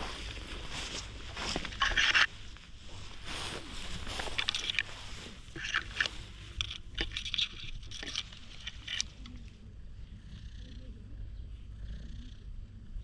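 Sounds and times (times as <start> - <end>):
tall grass rustling: 0.0 - 9.2.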